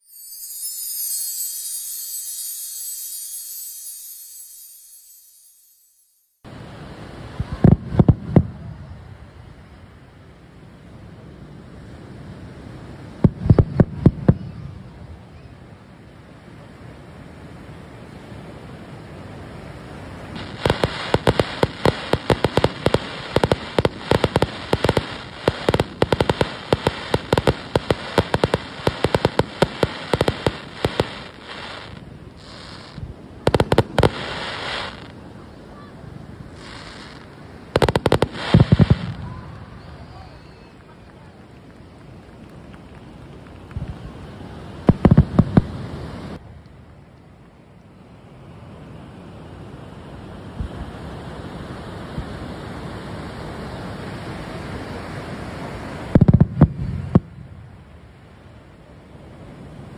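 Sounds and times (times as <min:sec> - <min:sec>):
steady hiss: 0:00.0 - 0:59.9
fireworks bangs and crackling: 0:07.2 - 0:09.5, 0:12.7 - 0:15.3, 0:19.7 - 0:46.4, 0:53.6 - 0:58.0.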